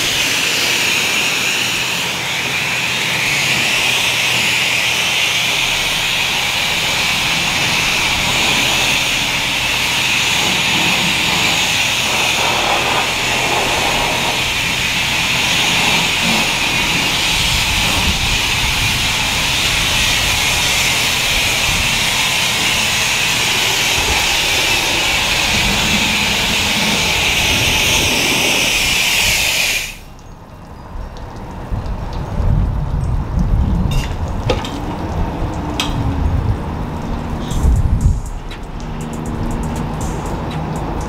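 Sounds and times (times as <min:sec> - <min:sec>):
car wash machinery rushing hiss: 0:00.0 - 0:30.2.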